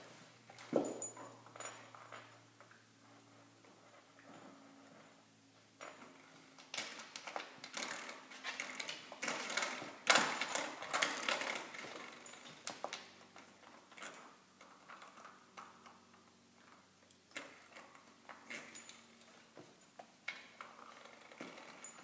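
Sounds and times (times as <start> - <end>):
door spring rattling and twanging: 9.1 - 12.9.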